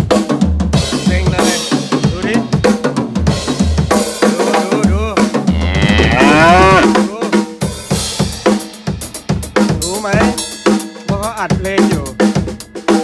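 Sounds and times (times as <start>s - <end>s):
drum kit playing a beat: 0.0s - 13.0s
wavering drawn-out cry: 5.5s - 7.0s.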